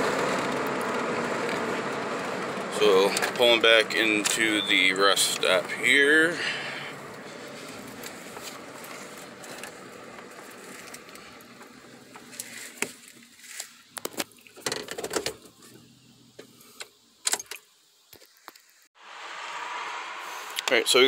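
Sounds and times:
car engine running: 0:00.0 - 0:13.9.

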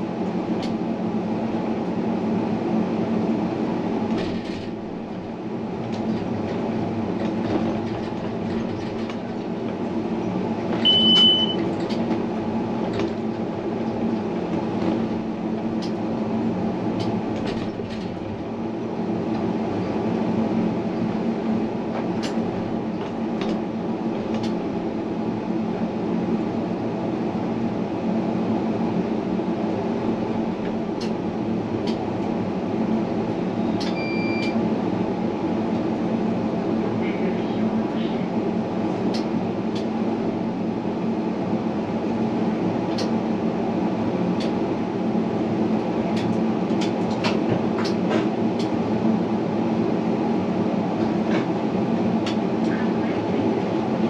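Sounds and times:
tram rumbling: 0:00.0 - 0:54.0
high beep: 0:10.8 - 0:11.6, 0:33.9 - 0:34.6.

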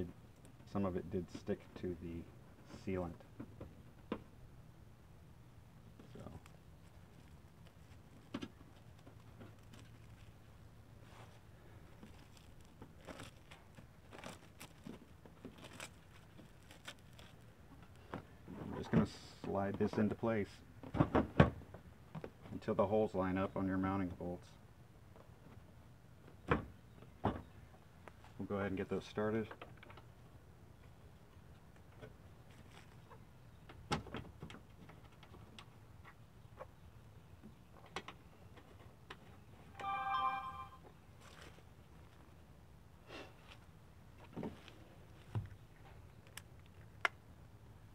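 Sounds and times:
plastic film crinkling and tearing: 0:12.0 - 0:17.5.

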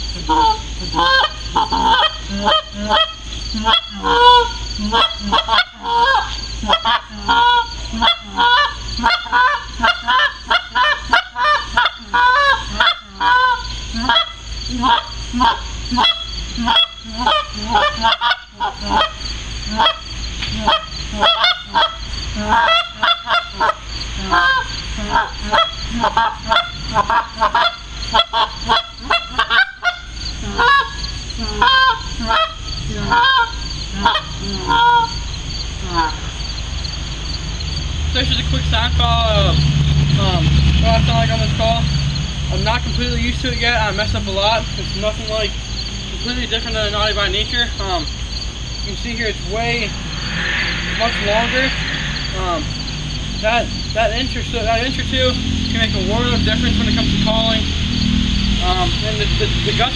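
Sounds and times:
goose call honks and clucks: 0:00.0 - 0:36.4, 0:48.8 - 0:59.9.

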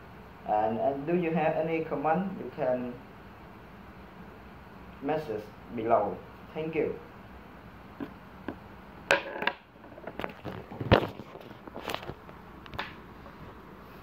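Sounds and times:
camera handling knocks and rustles: 0:08.0 - 0:12.8.

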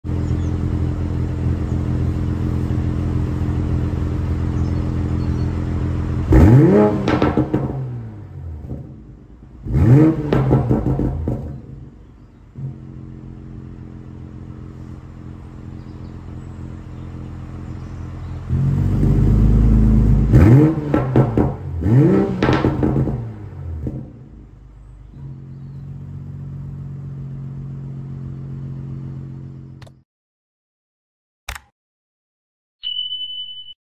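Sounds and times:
car engine idling and revving: 0:00.0 - 0:30.0.

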